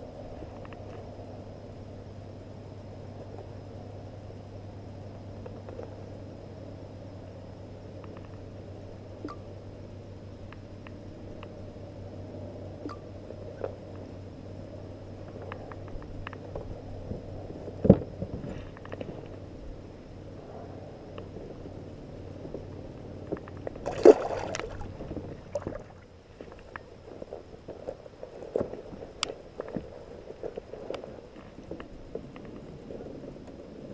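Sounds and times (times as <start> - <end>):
water sloshing against kayak: 23.6 - 26.5.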